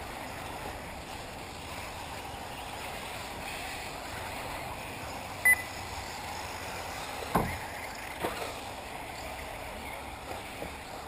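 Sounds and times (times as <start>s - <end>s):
outdoor noise: 0.0s - 11.0s
short electronic beep: 5.4s - 5.7s.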